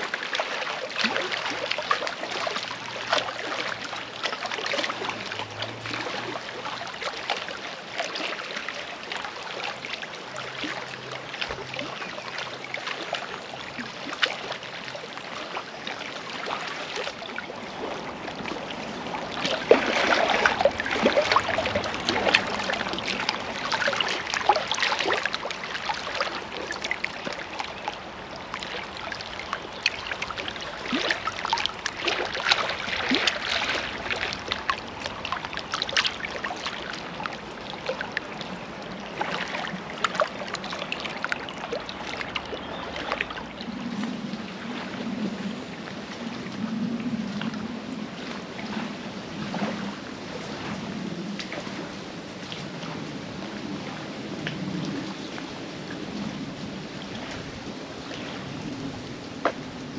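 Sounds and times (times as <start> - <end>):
water lapping against rocks: 0.0 - 59.9.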